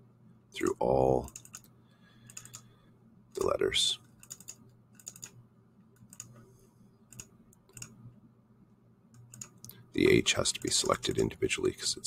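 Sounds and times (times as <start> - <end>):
faint low hum: 0.0 - 12.0
computer mouse clicks: 1.2 - 2.7, 4.2 - 6.4, 7.1 - 8.0, 9.1 - 9.8.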